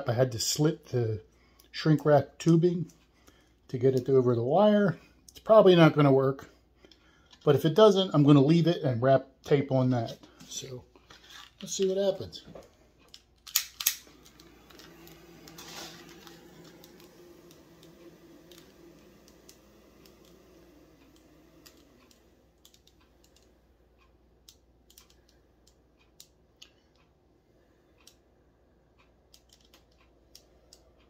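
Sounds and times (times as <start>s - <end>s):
torch igniter clicks: 11.6s - 26.8s
torch flame running: 13.6s - 23.6s.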